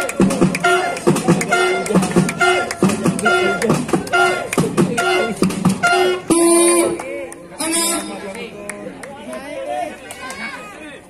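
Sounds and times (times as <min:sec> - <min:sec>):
music with steady beat: 0:00.0 - 0:07.0.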